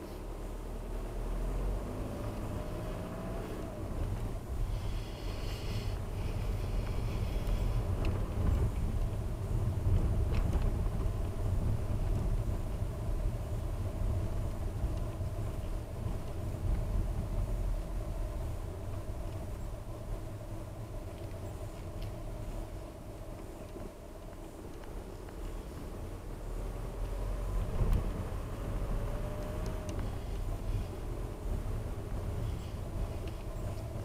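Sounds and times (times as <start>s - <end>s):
car engine and tyre rumble: 0.0s - 34.0s
faint ticks: 23.3s - 25.9s.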